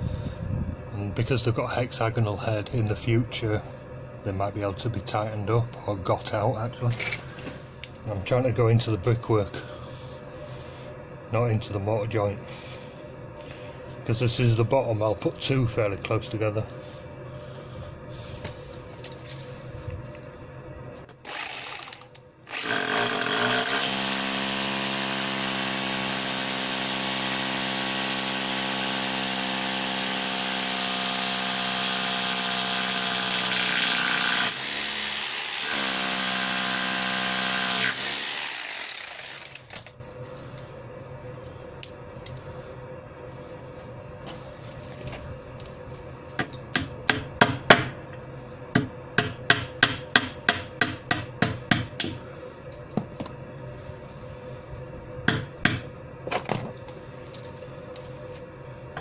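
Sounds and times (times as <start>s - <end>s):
hammer drill boring: 21.2s - 39.8s.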